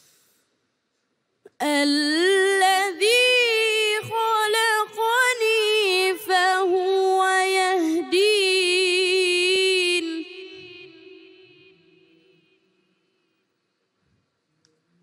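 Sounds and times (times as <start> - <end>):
boy reciting in melodic style: 1.5 - 11.4.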